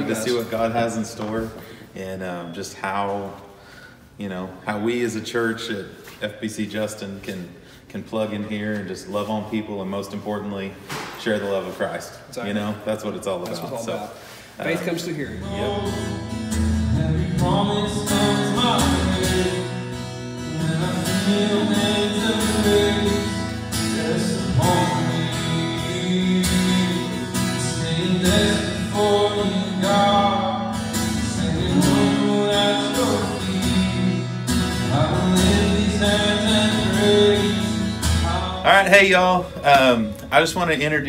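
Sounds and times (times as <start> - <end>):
man singing: 14.6 - 41.0
strummed acoustic guitar: 14.6 - 41.0.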